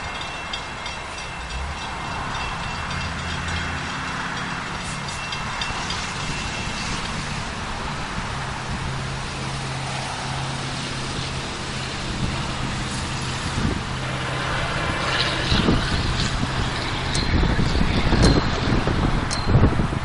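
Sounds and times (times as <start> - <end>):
low engine drone: 0.0 - 20.0
rushing noise: 0.0 - 20.0
wind gusts on microphone: 0.0 - 20.0.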